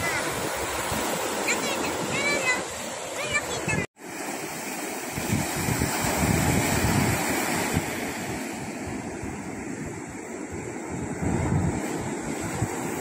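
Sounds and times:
ocean surf breaking on beach: 0.0 - 13.0
wind buffeting microphone: 5.0 - 13.0.

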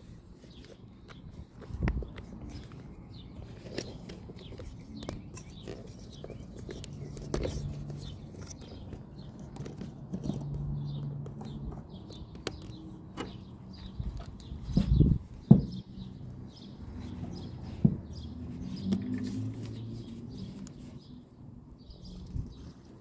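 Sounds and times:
birds chirping: 0.4 - 23.0
tools clicking and knocking: 3.6 - 13.4.

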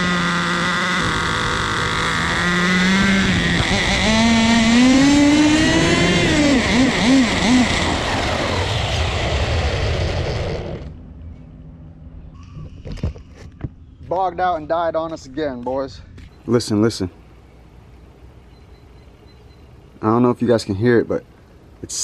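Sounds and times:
rc car engine revving: 0.0 - 11.0.

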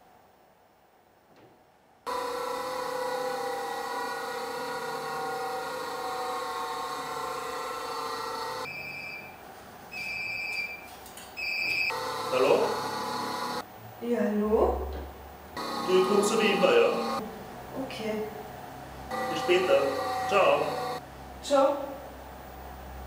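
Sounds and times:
bench grinder whining: 2.1 - 8.7, 11.9 - 13.6, 15.6 - 17.3, 19.0 - 21.0
phone ringing: 11.4 - 13.6, 19.1 - 21.0.

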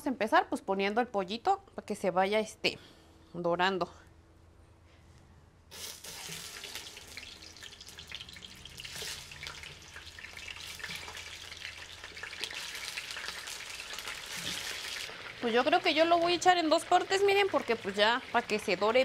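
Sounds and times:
chicken sizzling in hot oil: 5.8 - 19.0.

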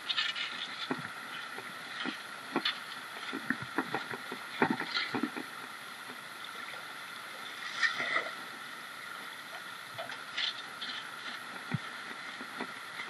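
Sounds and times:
water splashes and knocks: 0.0 - 5.5
river water running: 0.0 - 13.0.

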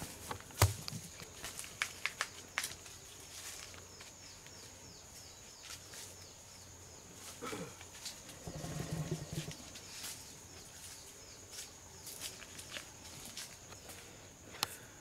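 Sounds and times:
elephant calf rumbling: 8.3 - 9.8.

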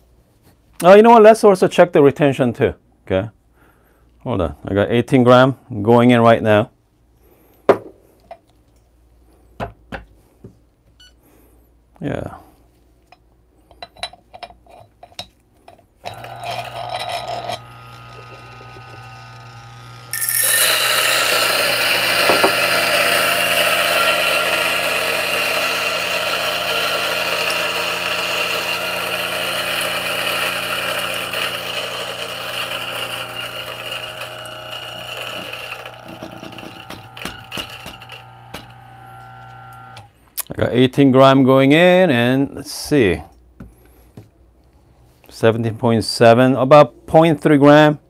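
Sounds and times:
coffee beans grinding: 16.0 - 40.1
coffee grinder motor hum: 16.0 - 40.1.

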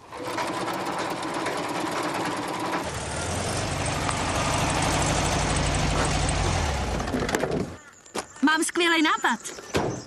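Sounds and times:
sewing machine running: 0.0 - 3.4
vehicle engine droning: 1.0 - 7.8.

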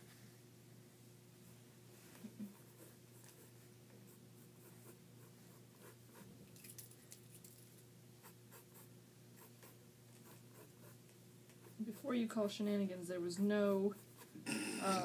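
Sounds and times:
low room hum: 0.0 - 15.0
pens scratching on paper: 8.2 - 12.4, 13.2 - 14.4.

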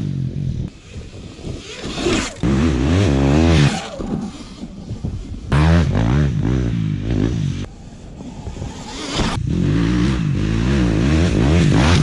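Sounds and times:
dirt bike engine revving: 1.5 - 4.6, 5.5 - 7.7, 8.6 - 12.0.

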